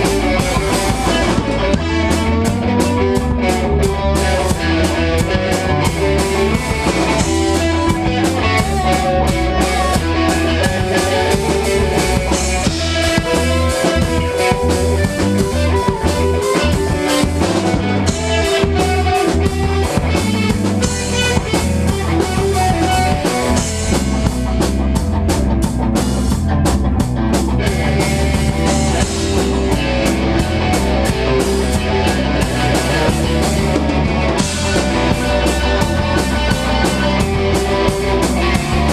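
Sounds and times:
drum kit: 0.0 - 38.9
electric guitars: 0.0 - 38.9.

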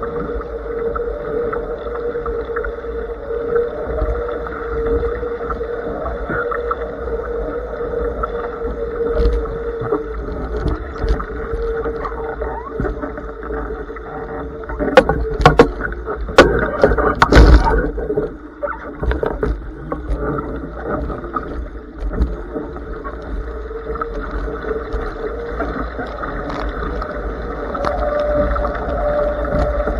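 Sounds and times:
steady hum: 0.0 - 29.9
water rushing past hull: 0.0 - 29.9
loud knocks and splashes: 15.0 - 18.0.

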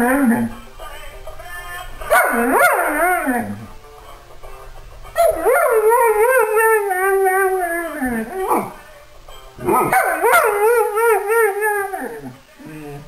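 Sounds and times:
dog howling: 0.0 - 0.5, 2.2 - 3.7, 5.2 - 8.8, 9.8 - 13.0.

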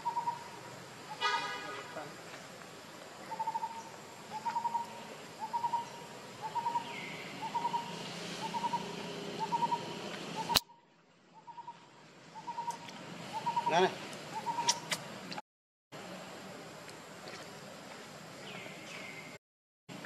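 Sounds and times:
bird calling: 0.0 - 1.4, 3.2 - 15.0
forest background: 0.0 - 15.4, 16.0 - 20.0.

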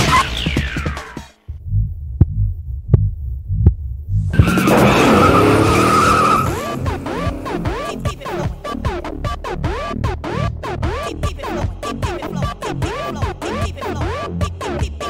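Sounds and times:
sharp hits: 4.3 - 8.6
car tyres screeching: 4.3 - 9.0.

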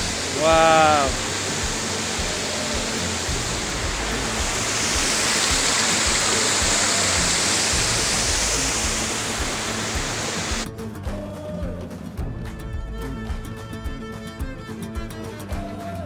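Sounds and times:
stream and waterfall rushing: 0.0 - 10.7
faint background music: 0.0 - 16.0.

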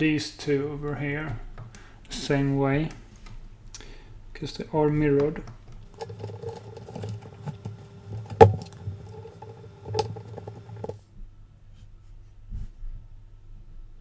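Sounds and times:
faint hum: 0.0 - 14.0.

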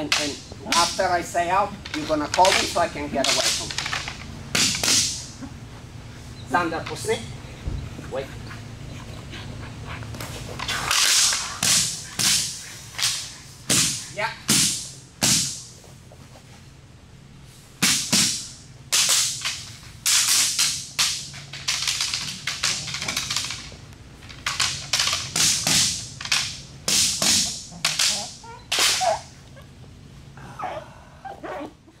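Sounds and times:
training stick cracking: 0.0 - 5.4, 10.2 - 15.6, 17.9 - 29.6.

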